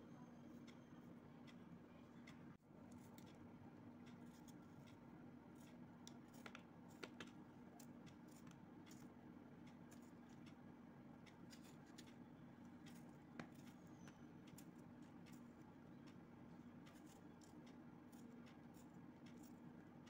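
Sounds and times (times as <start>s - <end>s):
low steady hum: 0.0s - 20.0s
knife cutting a tomato: 4.0s - 10.6s.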